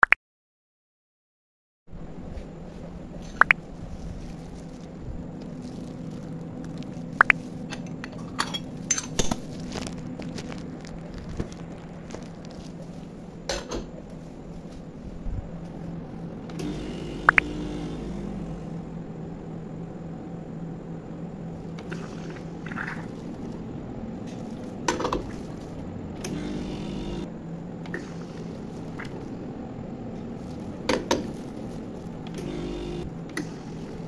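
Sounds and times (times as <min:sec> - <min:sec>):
espresso machine humming: 0:16.5 - 0:19.0, 0:26.2 - 0:27.3, 0:32.2 - 0:34.0.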